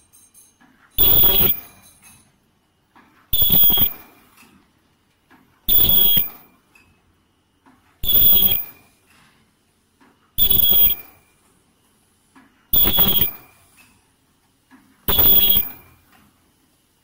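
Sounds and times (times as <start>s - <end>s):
machine noise bursts with ringing tone: 0.0s - 2.2s, 3.3s - 4.3s, 5.7s - 6.6s, 8.0s - 9.0s, 10.4s - 11.4s, 12.7s - 13.8s, 15.1s - 16.0s.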